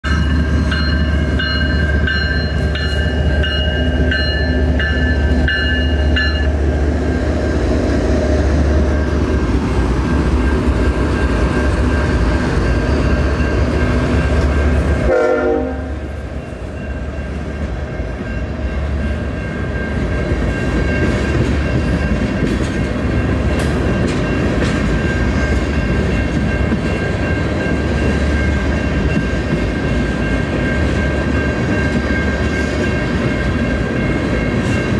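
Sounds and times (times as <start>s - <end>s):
crossing bell dinging: 0.0s - 34.9s
train cars rumbling and clattering: 0.0s - 34.9s
train horn: 14.9s - 16.2s.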